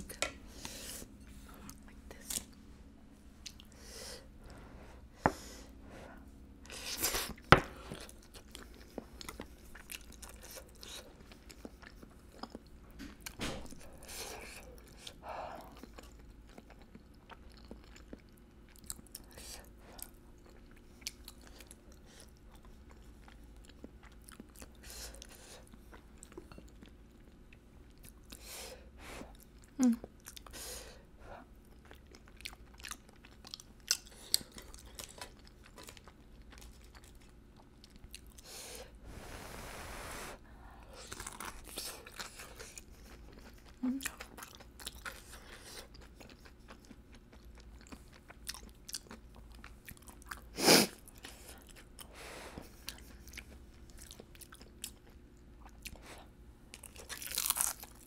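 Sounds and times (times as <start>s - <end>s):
person chewing and biting: 31.7s - 38.4s, 41.0s - 58.0s.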